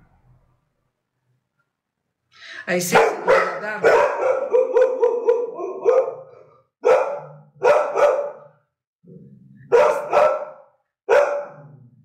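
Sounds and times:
dog barking: 2.9 - 8.7, 9.6 - 11.8.

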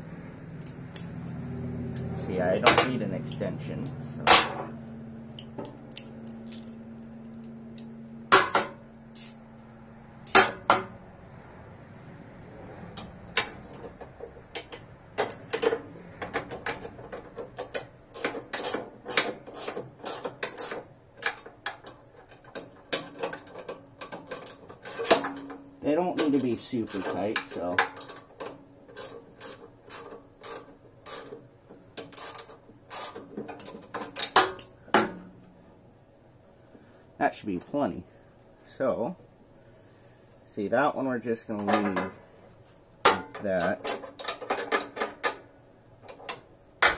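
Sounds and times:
low steady hum: 0.0 - 46.9
metallic clanks: 2.6 - 10.9, 43.0 - 45.5
loud metal clank: 4.2 - 4.7
ratchet wrench clicking: 9.2 - 9.7.

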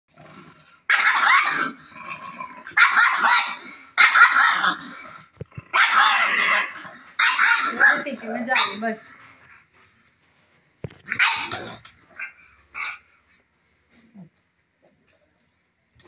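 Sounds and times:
dog barking and growling: 0.2 - 9.3, 10.9 - 13.4.

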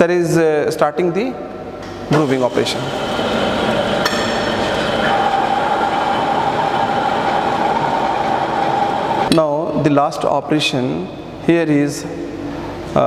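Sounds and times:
lathe cutting steel: 2.1 - 9.3.

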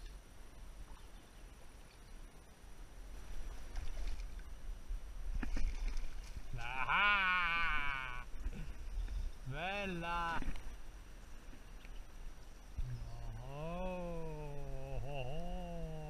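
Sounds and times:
person's wavering exclamation: 6.6 - 8.2, 13.1 - 16.0.

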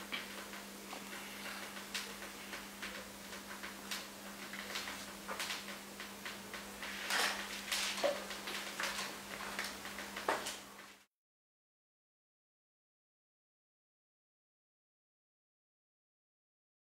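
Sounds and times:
steady low hum: 0.0 - 11.1.

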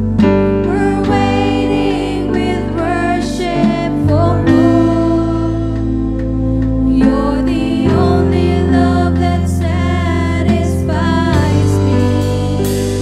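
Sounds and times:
slow worship music with singing: 0.0 - 13.0.

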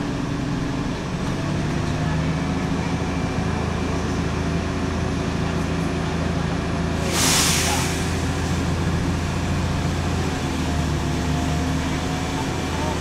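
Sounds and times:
diesel bus engine humming: 0.0 - 13.0
compressed air hiss: 7.0 - 8.6.

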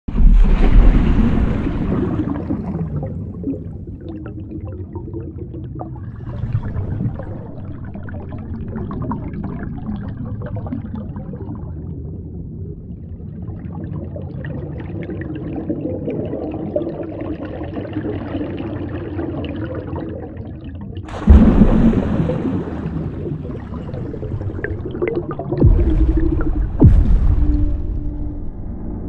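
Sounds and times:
loud splash into water: 0.1 - 3.0, 21.1 - 28.4
underwater bubbling and gurgling: 0.1 - 29.0
low rumble: 21.1 - 29.0.

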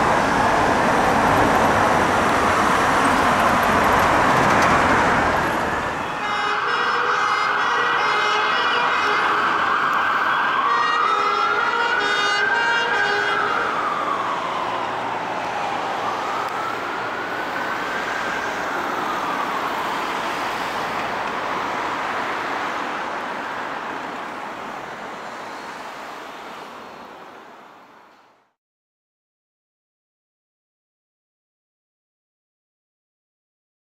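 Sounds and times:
emergency vehicle siren wailing: 0.0 - 28.0
road noise: 0.0 - 28.6
steady siren tones: 5.1 - 23.9.

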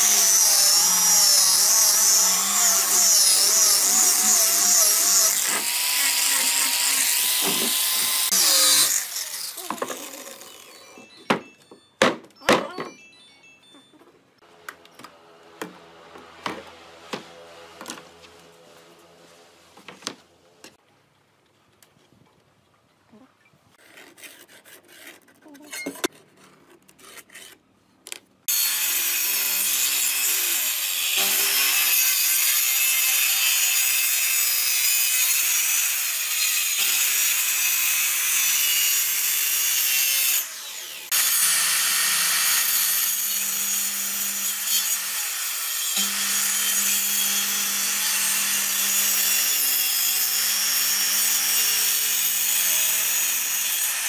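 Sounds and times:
circular saw cutting wood: 0.0 - 11.1, 28.5 - 54.0.

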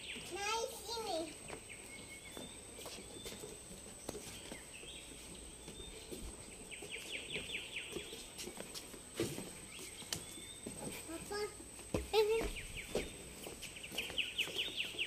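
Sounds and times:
birds calling: 0.0 - 11.5, 12.2 - 15.0.

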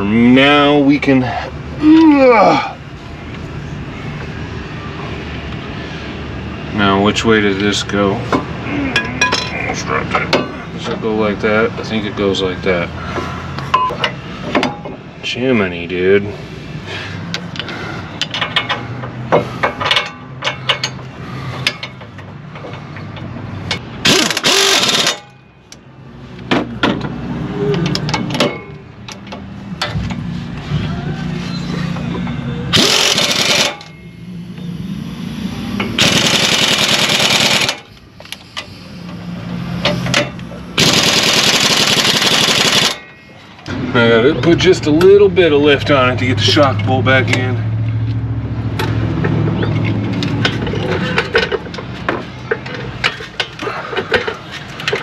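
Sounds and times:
tools and metal parts clanking: 8.3 - 11.1, 17.4 - 25.6, 26.5 - 30.3, 31.5 - 34.1, 48.7 - 55.0
impact wrench hammering: 23.7 - 25.4, 32.7 - 33.9, 35.9 - 38.0, 39.8 - 43.0.

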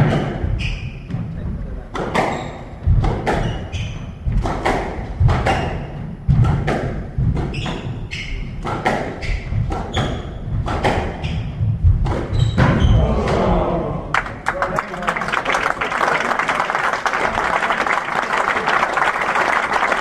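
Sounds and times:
shoes squeaking on wooden floor: 0.0 - 1.4, 2.1 - 6.5, 7.2 - 13.0
squash ball thudding: 1.9 - 13.5.

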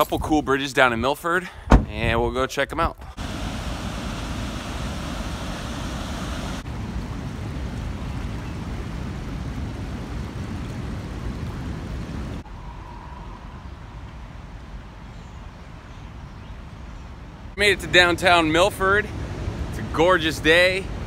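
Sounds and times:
wind noise rumble: 3.1 - 15.8
river water rushing over dam: 3.2 - 12.4.

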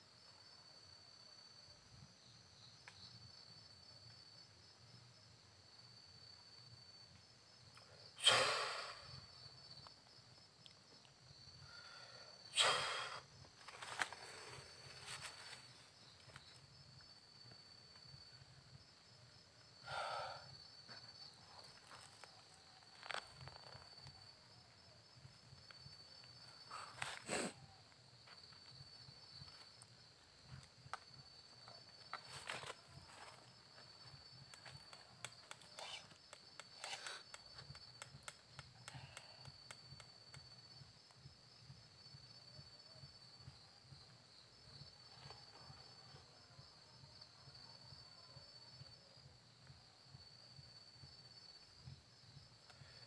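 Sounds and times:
crickets trilling: 0.0 - 53.0
short hissing noises: 8.1 - 9.3, 12.5 - 15.6, 26.7 - 27.7, 35.6 - 37.8.

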